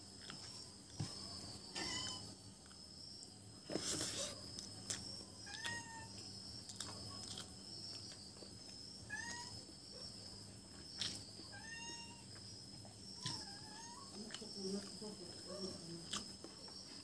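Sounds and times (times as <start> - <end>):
high chirring of insects: 0.0 - 17.0
meow-like animal calls: 1.7 - 2.3, 5.4 - 6.2, 9.1 - 9.6, 11.5 - 12.3, 13.2 - 14.1.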